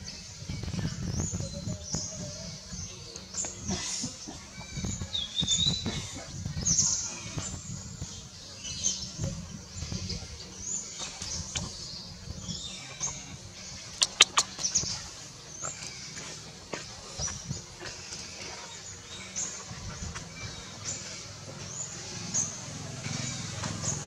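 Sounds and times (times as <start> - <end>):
infant monkey squeaking: 14.0 - 14.5
sharp clicks: 14.0 - 14.6.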